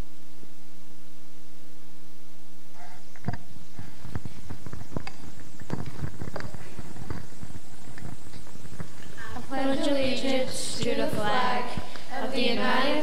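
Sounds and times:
microphone handling thumps and knocks: 2.8 - 9.2.

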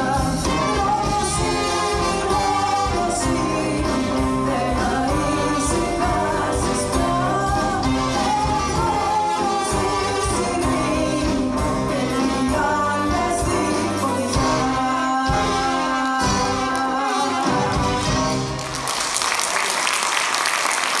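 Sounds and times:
woman singing: 0.0 - 18.1
military band playing: 0.0 - 18.9
audience applauding: 16.7 - 21.0.

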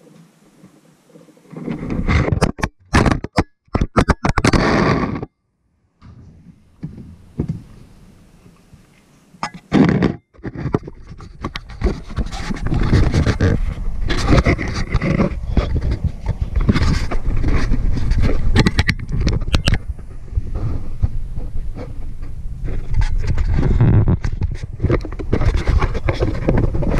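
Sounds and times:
camera handling noise: 18.2 - 19.8
knocks and clicks: 18.6 - 19.8.

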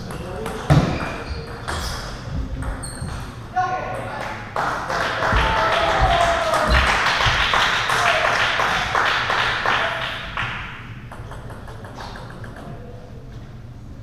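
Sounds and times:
hands clapping: 4.2 - 10.8
table tennis ball bouncing: 10.5 - 12.9.

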